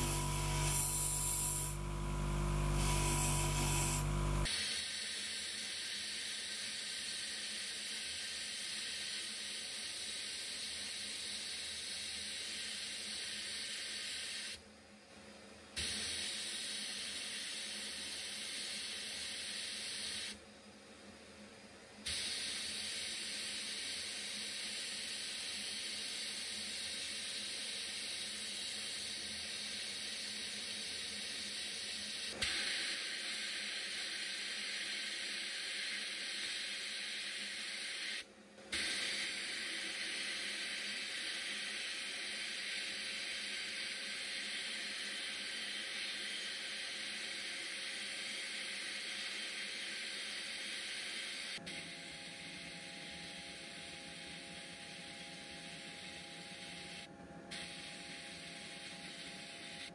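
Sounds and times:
sandblasting gun hissing: 0:00.0 - 0:14.5.

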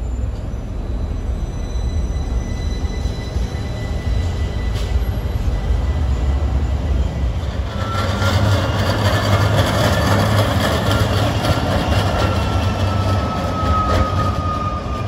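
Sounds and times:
street traffic rumble: 0:00.0 - 0:15.0
streetcar passing with whine: 0:00.0 - 0:15.0.

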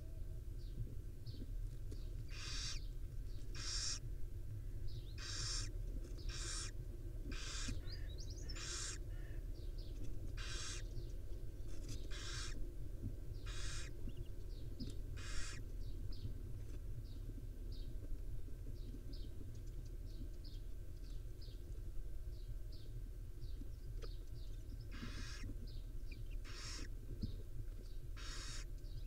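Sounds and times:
owls rasping hiss calls: 0:02.3 - 0:02.8, 0:03.5 - 0:04.0, 0:05.2 - 0:09.3, 0:10.4 - 0:10.9, 0:12.1 - 0:12.6, 0:13.4 - 0:14.0, 0:15.2 - 0:15.6, 0:24.9 - 0:25.5, 0:26.4 - 0:26.9, 0:28.2 - 0:28.7.

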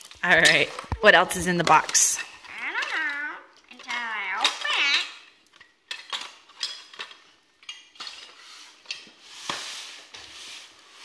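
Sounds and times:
plastic pieces clattering in box: 0:00.0 - 0:11.0.

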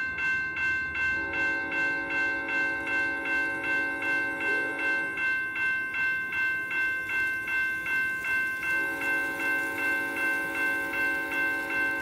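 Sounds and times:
crossing bell dinging: 0:00.0 - 0:12.0
locomotive horn chord: 0:01.2 - 0:05.2, 0:08.8 - 0:12.0.

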